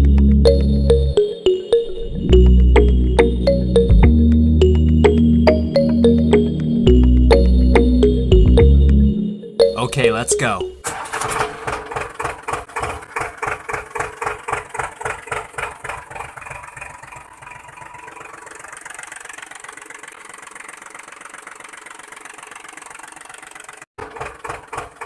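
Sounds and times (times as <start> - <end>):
tractor engine chugging: 10.8 - 25.0.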